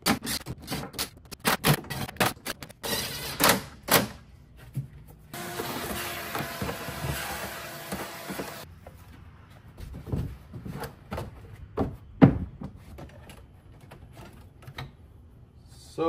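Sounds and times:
shop vacuum running: 5.4s - 8.6s
knocks and thumps: 9.8s - 14.0s.

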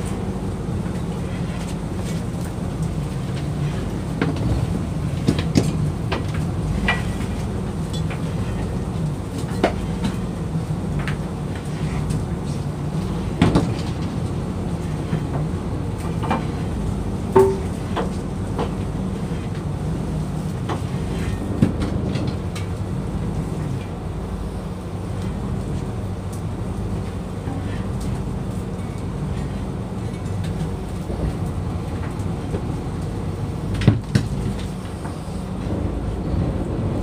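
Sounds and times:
boat machinery droning: 0.0s - 37.0s
knocks and clanks: 17.3s - 19.7s, 20.6s - 22.7s.

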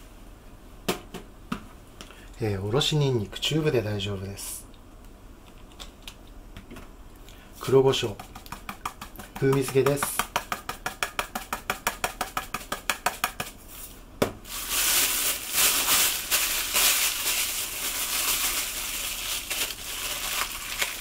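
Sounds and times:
hands kneading meat squishing: 7.6s - 11.4s, 14.6s - 21.0s.

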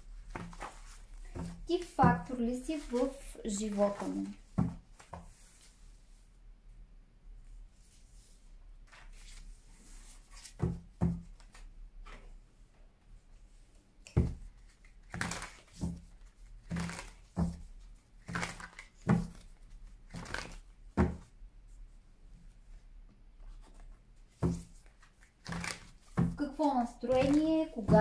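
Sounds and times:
playing cards shuffling: 0.3s - 1.6s, 14.1s - 17.6s, 18.2s - 21.2s, 23.4s - 28.0s.

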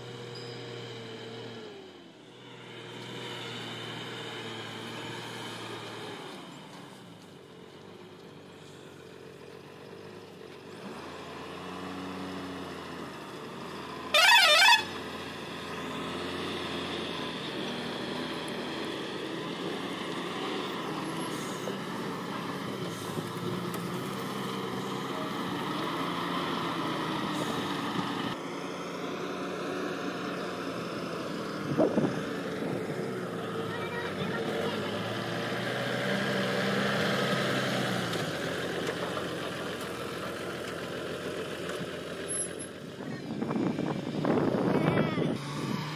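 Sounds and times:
diesel truck engine running: 0.0s - 45.9s
warbling truck horn blast: 14.1s - 15.0s.

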